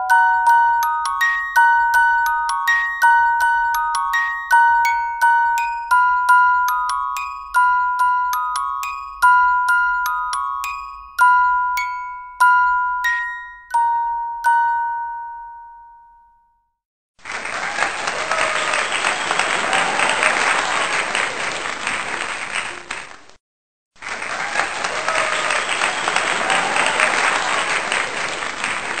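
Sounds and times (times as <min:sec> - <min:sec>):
chime note ringing: 0:00.0 - 0:16.6
crowd applause: 0:17.2 - 0:23.4, 0:24.0 - 0:29.0.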